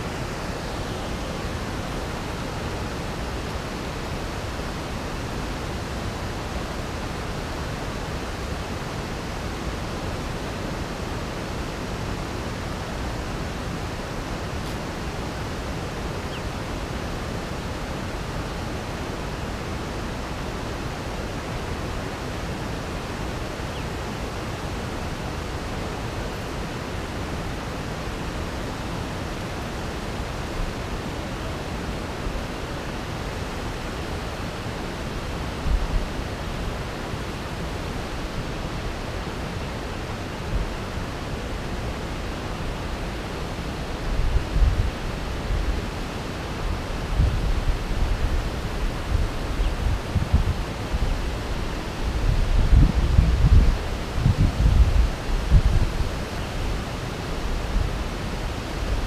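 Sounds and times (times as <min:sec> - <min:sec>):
steady rushing noise: 0:00.0 - 0:59.0.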